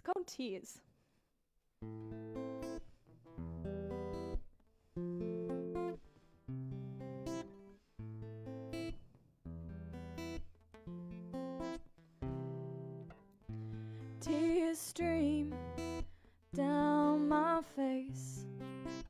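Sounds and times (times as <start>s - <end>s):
acoustic guitar strumming chords: 9.8s - 19.0s.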